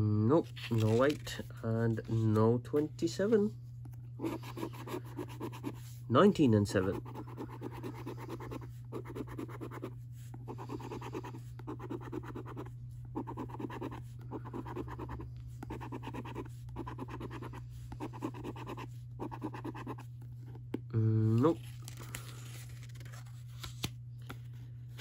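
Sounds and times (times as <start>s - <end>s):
coin scratching scratchcard: 6.8s - 20.0s.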